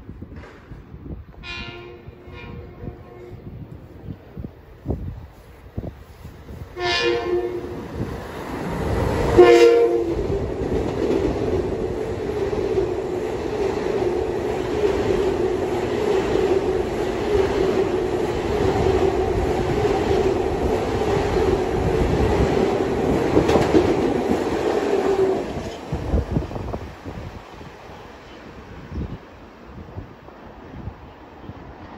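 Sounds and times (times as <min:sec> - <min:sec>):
train running past: 0:00.4 - 0:31.9
train horn blasts: 0:01.4 - 0:03.5, 0:06.8 - 0:07.8, 0:09.4 - 0:10.2.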